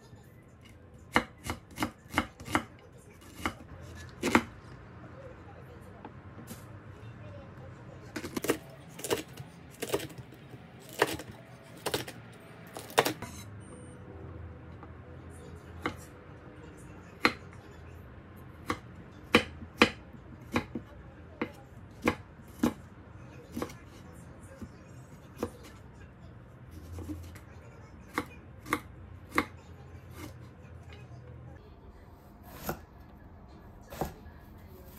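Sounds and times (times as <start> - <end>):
knife chopping on wooden board: 1.1 - 4.5, 8.2 - 10.2, 10.8 - 12.2, 12.8 - 13.3, 18.6 - 22.8.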